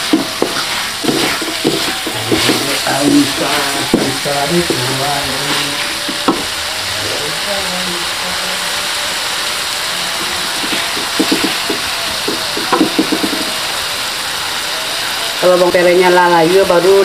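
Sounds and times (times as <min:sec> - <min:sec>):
wooden spatula scraping a wok: 0:00.0 - 0:06.8, 0:10.0 - 0:13.6
food sizzling in a wok: 0:00.0 - 0:17.0.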